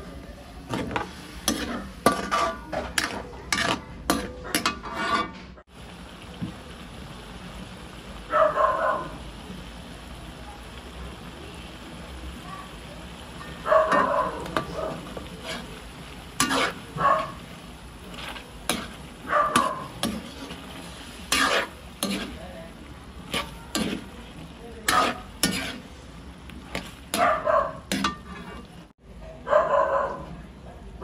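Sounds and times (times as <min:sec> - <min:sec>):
sauce sizzling: 0:00.0 - 0:29.0
metal ladle scraping wok: 0:00.6 - 0:05.6, 0:13.4 - 0:28.9.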